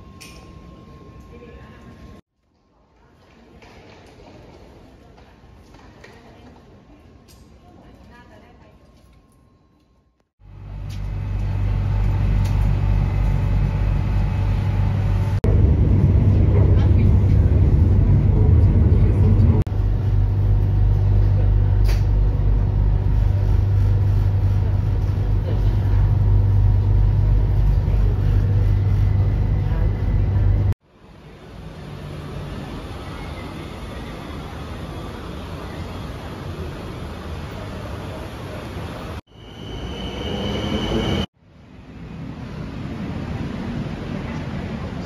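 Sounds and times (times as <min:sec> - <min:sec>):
train rumbling: 0:10.5 - 0:41.3.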